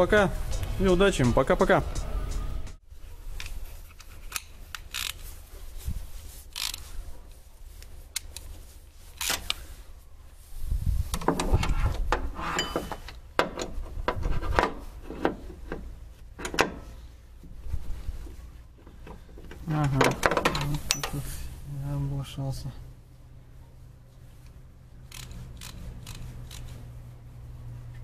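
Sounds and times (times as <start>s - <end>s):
tools clicking and knocking on parts: 11.2s - 16.9s, 18.9s - 21.3s.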